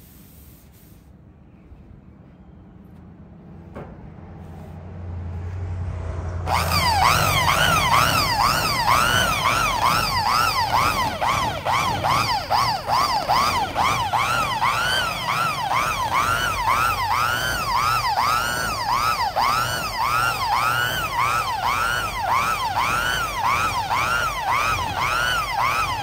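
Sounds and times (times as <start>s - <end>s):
electric polisher whining: 6.5s - 26.0s.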